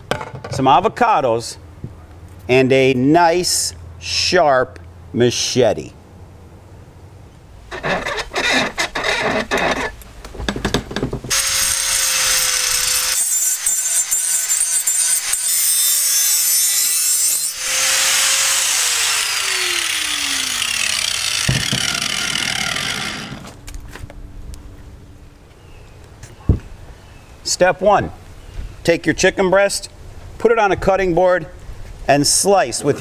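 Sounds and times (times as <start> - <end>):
angle grinder grinding steel: 11.3 - 23.6
grinder disc spinning down: 17.5 - 23.6.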